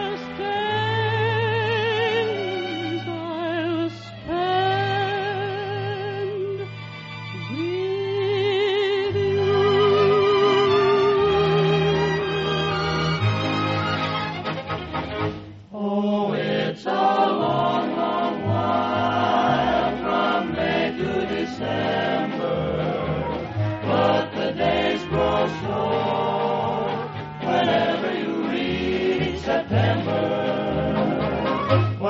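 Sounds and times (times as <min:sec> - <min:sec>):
choir singing: 0:01.6 - 0:03.1, 0:15.8 - 0:32.0
orchestral accompaniment: 0:09.1 - 0:15.6, 0:17.4 - 0:32.0.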